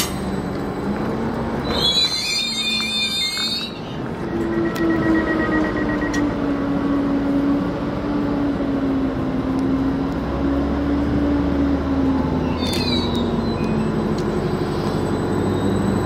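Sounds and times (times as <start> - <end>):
high squeak: 1.6 - 5.5, 12.4 - 16.0.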